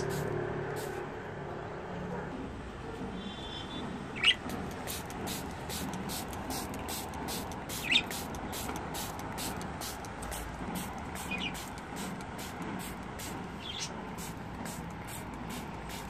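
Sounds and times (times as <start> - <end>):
spray bottle squirting water: 0.0 - 1.0, 4.2 - 16.0
budgie calls: 7.7 - 8.2.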